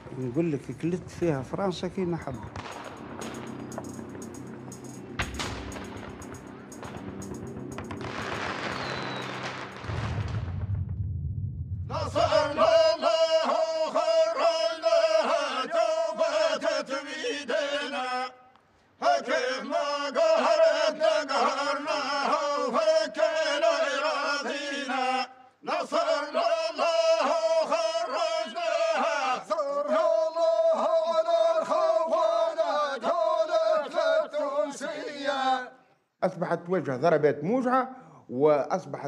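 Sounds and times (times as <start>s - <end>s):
steady beat: 0.0s - 10.3s
men chanting in unison: 11.9s - 18.4s, 19.0s - 35.8s.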